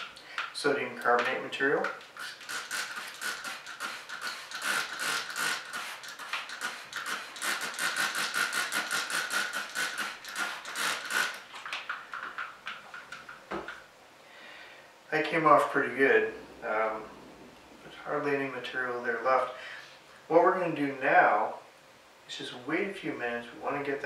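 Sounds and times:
spray bottle squirting: 2.0s - 12.6s.

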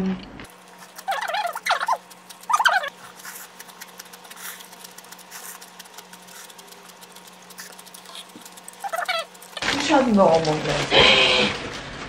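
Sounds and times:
quiet chewing with mouth clicks: 0.6s - 9.6s
squeaky noodle slurp: 0.9s - 4.8s, 7.5s - 9.6s.

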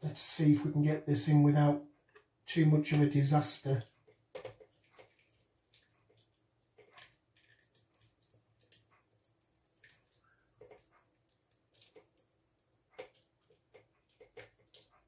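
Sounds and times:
liquid drips and wet splats: 3.6s - 15.0s.

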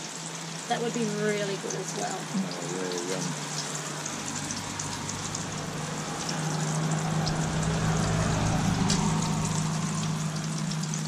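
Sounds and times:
low hum: 2.3s - 11.0s.

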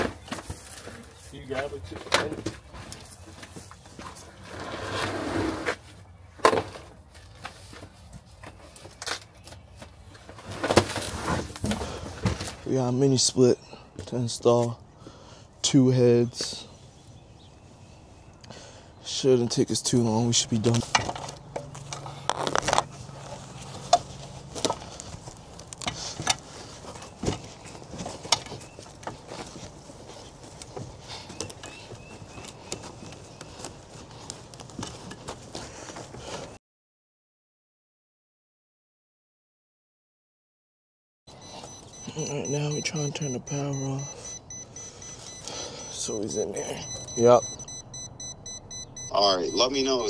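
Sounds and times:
cardboard box scraping: 4.3s - 6.0s, 10.3s - 12.6s.

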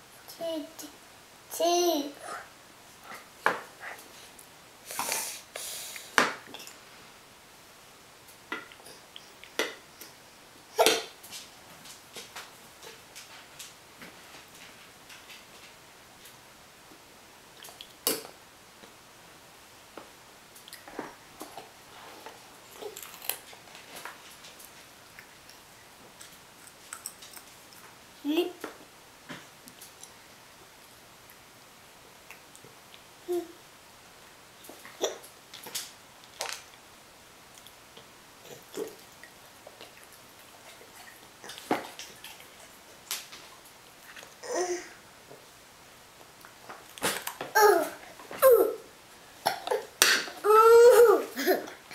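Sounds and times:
child's vocal sound: 1.5s - 2.5s, 33.3s - 33.6s, 44.4s - 45.0s, 47.6s - 48.9s, 49.6s - 51.8s.

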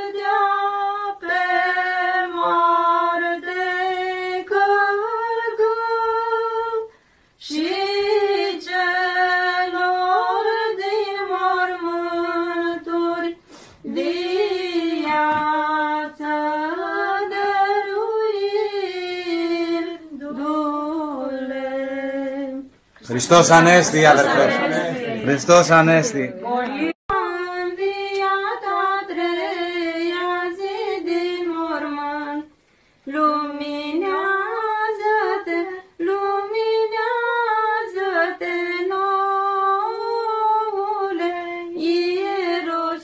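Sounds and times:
woman singing chant: 0.0s - 22.7s, 26.3s - 32.5s, 33.1s - 43.0s
breaths: 6.9s - 7.4s, 13.4s - 13.9s, 32.6s - 33.1s.

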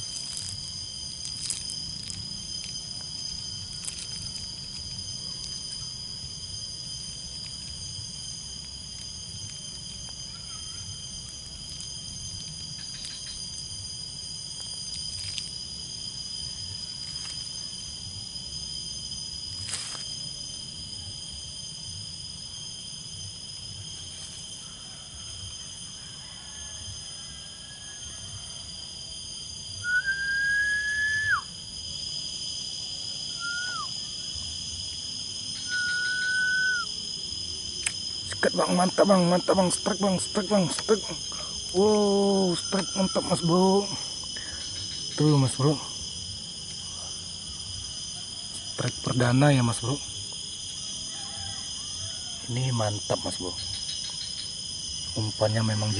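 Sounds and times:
insects droning: 0.0s - 55.9s
whistled note: 29.8s - 31.5s, 33.3s - 33.9s, 35.6s - 36.9s.

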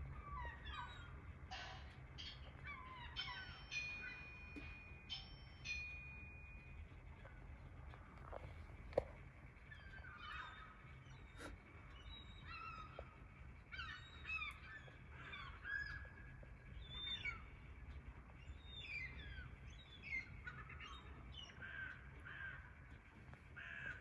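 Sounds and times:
gulls calling: 0.0s - 24.0s
low steady rumble: 0.0s - 24.0s.

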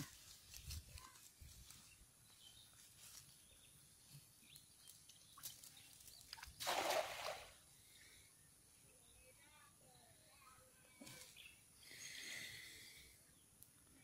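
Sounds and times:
cast net splashing into water: 6.3s - 7.6s.

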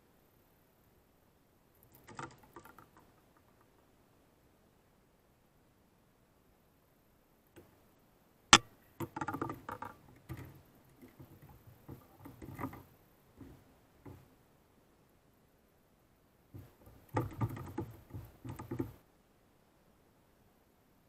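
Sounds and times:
fishing gear rattling on kayak: 9.0s - 14.3s, 16.6s - 19.0s.

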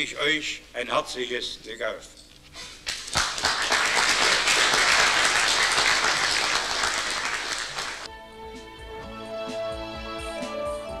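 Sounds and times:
audience applauding: 2.9s - 8.1s
music: 8.1s - 11.0s.

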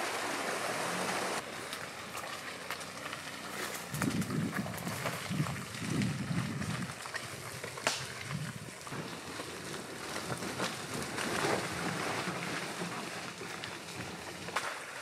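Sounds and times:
tyres on leaves and dirt: 0.0s - 15.0s
vehicle rumble: 0.0s - 15.0s
sharp cracks: 7.0s - 8.4s.

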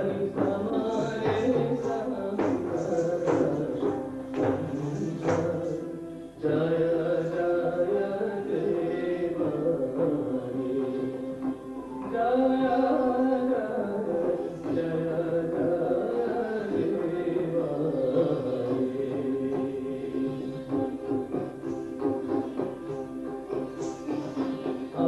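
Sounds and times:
drum: 0.0s - 5.9s, 18.2s - 25.0s
person singing: 0.0s - 25.0s.

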